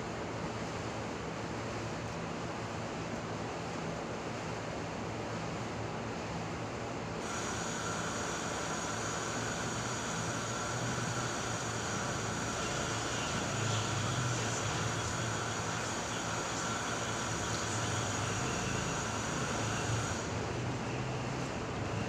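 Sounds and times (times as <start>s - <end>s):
mechanical hum: 0.0s - 22.0s
constant hiss: 7.1s - 22.0s
high steady whine: 7.2s - 22.0s.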